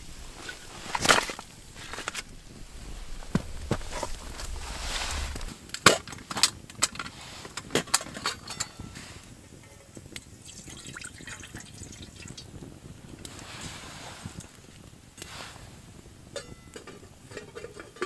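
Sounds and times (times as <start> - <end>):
faint fire crackles: 0.0 - 18.0
metal pot clinking: 8.0 - 12.4, 16.3 - 18.0
water pouring and sloshing: 10.2 - 12.5.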